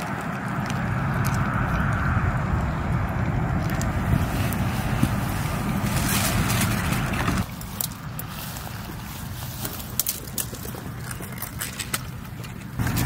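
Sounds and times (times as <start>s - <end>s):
wind buffeting microphone: 0.0s - 7.5s
rustling of dry grass and twigs: 0.0s - 13.0s.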